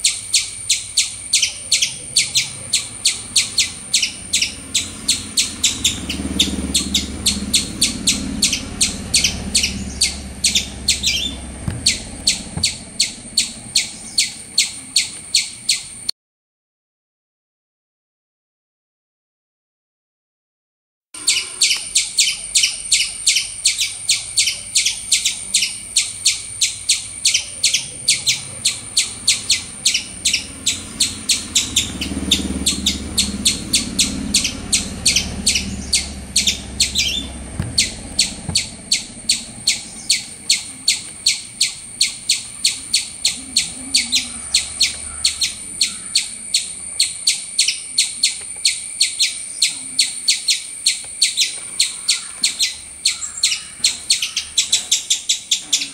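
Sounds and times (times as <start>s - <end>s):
squirrel chirping calls: 0.0s - 16.1s, 21.2s - 55.9s.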